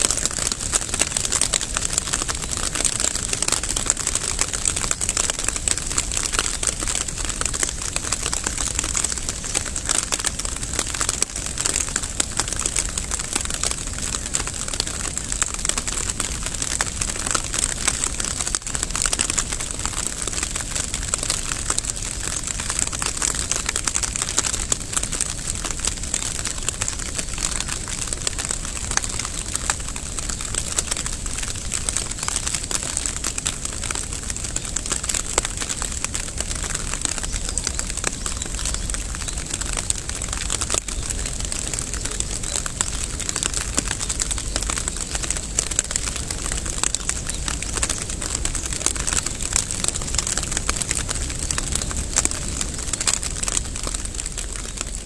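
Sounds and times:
steady rain patter: 0:00.0 - 0:55.0.

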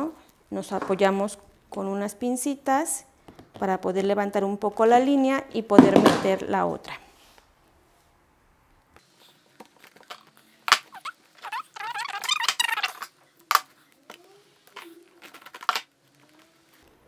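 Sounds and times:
plastic strip squeaking: 0:09.9 - 0:13.7.

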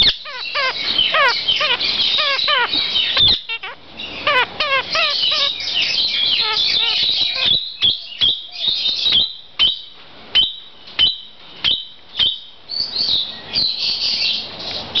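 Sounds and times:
parakeet calling: 0:00.0 - 0:09.8.

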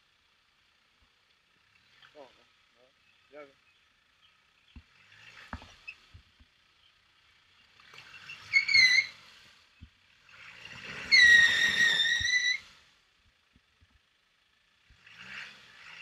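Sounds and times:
engine rumble: 0:00.0 - 0:16.0
high-pitched squeals: 0:08.2 - 0:09.2, 0:10.9 - 0:12.7.

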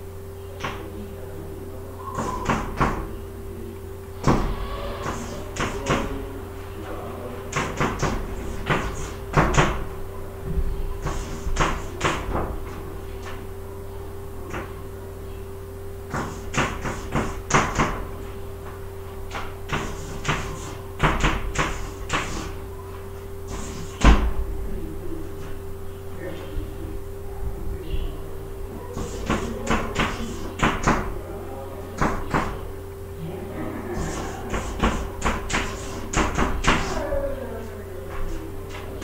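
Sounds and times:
chalk tapping and scratching: 0:07.5 - 0:09.8, 0:11.0 - 0:12.3, 0:16.1 - 0:17.9, 0:19.3 - 0:22.6, 0:23.5 - 0:24.2, 0:29.0 - 0:31.0, 0:34.0 - 0:37.0.

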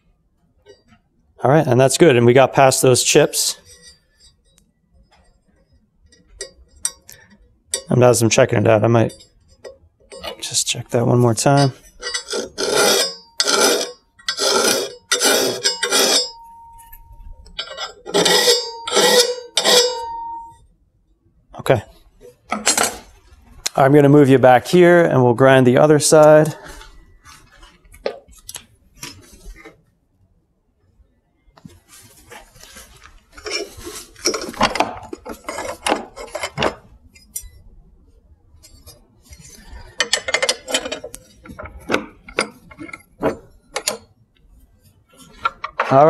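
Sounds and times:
steel scraping and knocking: 0:03.1 - 0:20.6, 0:22.2 - 0:23.3, 0:32.1 - 0:37.6, 0:38.6 - 0:44.1, 0:45.1 - 0:46.0
hand file rasping on steel: 0:11.6 - 0:16.7, 0:17.6 - 0:20.5
metal blade ringing: 0:11.6 - 0:20.6.

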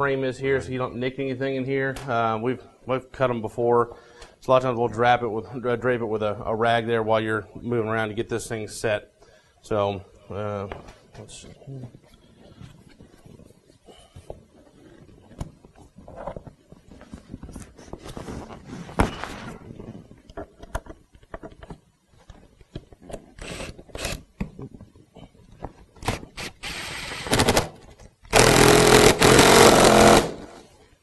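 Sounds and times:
scraping and rustling of seat: 0:11.4 - 0:20.2
cordless impact driver hammering: 0:26.0 - 0:27.7, 0:28.3 - 0:30.6.

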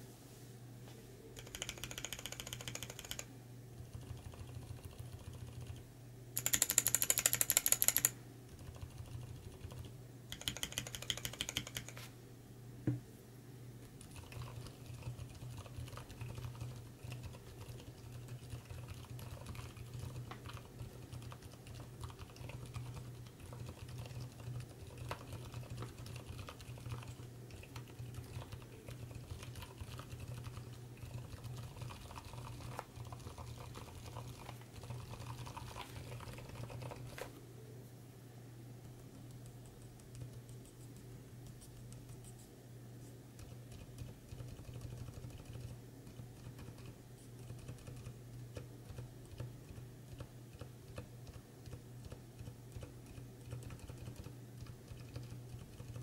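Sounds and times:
keyboard switches pressed rapidly: 0:01.4 - 0:03.3, 0:06.4 - 0:12.0, 0:43.4 - 0:56.0
quiet typing on mechanical keyboard: 0:01.4 - 0:12.1, 0:13.9 - 0:37.3, 0:38.8 - 0:42.5, 0:43.3 - 0:56.0.

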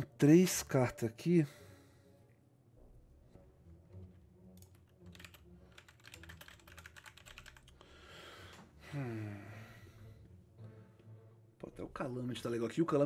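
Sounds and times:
man breathing: 0:01.5 - 0:02.4, 0:07.7 - 0:10.8
typing on computer keyboard: 0:04.6 - 0:07.8
man humming hmm: 0:08.8 - 0:09.7.

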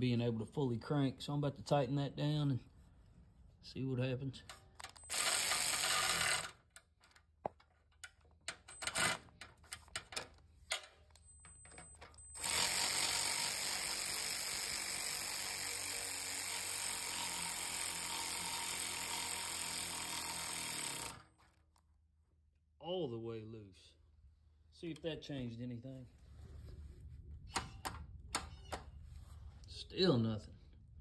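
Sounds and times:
tool noise: 0:04.4 - 0:21.6
ratchet clicks: 0:04.8 - 0:06.6.

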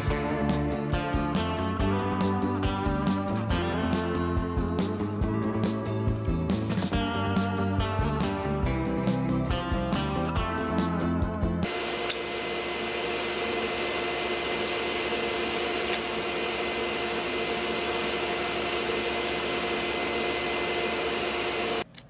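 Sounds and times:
machine motor humming: 0:11.6 - 0:21.8.

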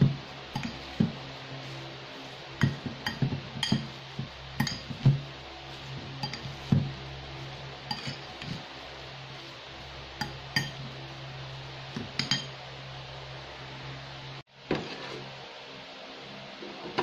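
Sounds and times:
fork clinking on ceramic bowl: 0:06.2 - 0:06.5, 0:07.9 - 0:08.6, 0:10.2 - 0:10.8, 0:12.2 - 0:12.5.

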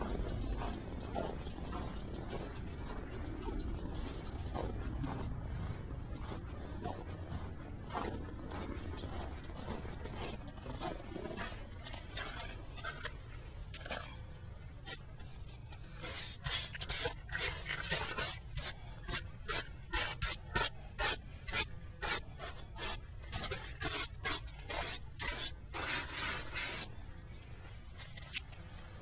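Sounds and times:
scraping against rubber pan: 0:14.8 - 0:26.9.

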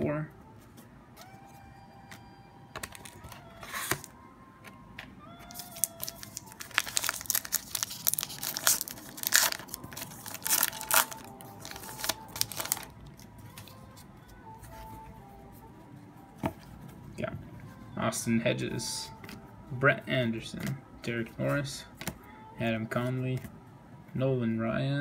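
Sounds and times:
wrapper tearing and crinkling: 0:05.5 - 0:13.2.

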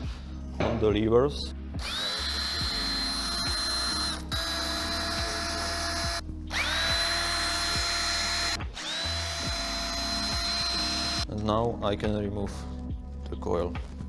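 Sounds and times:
cordless drill motor whine: 0:01.8 - 0:11.3.

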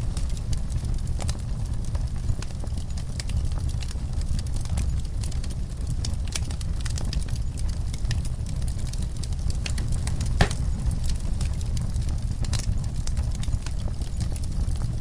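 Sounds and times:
steady low rumble: 0:00.0 - 0:15.0
wood fire crackling: 0:00.0 - 0:15.0
sharp pops of fire: 0:05.9 - 0:14.9.

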